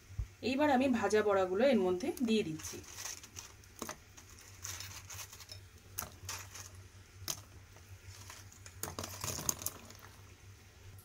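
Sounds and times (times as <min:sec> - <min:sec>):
fritters plopping into water: 0:08.3 - 0:10.2.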